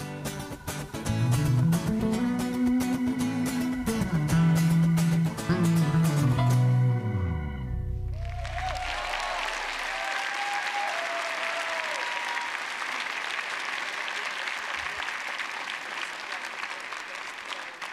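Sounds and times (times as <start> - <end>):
band's low note: 1.1 - 10.0
audience applauding: 8.1 - 17.9.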